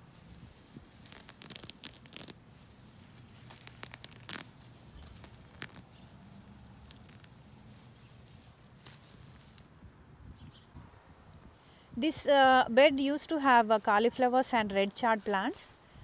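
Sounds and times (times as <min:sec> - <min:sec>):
weeds ripping from soil: 0:00.1 - 0:09.7.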